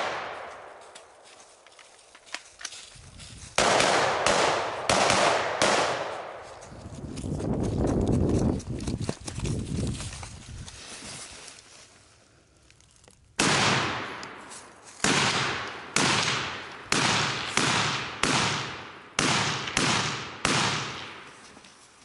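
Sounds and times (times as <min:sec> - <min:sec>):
rifle shots with ringing echo: 0:00.0 - 0:00.8, 0:03.6 - 0:06.4, 0:13.4 - 0:21.4.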